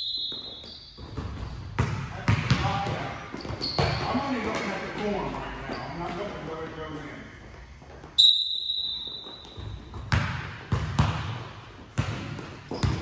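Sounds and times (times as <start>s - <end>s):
basketballs bouncing on hardwood: 1.0s - 5.4s, 9.2s - 13.0s.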